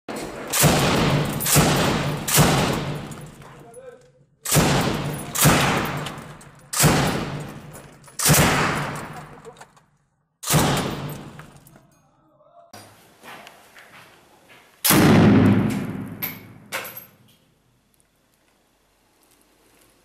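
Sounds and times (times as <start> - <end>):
machine gun reports echoing: 0.4 - 3.3, 4.5 - 9.4, 10.4 - 11.4.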